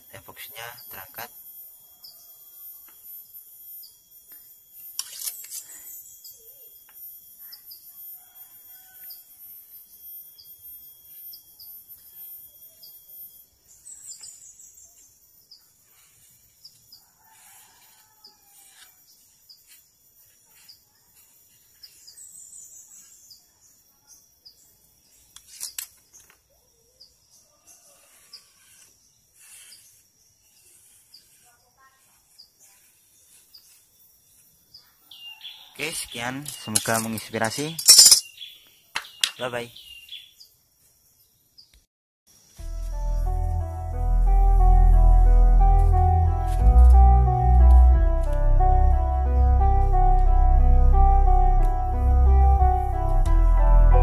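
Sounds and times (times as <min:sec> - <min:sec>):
insects calling: 0:00.0 - 0:41.7
birds chirping: 0:35.5 - 0:40.6
steady high tone: 0:42.6 - 0:54.0.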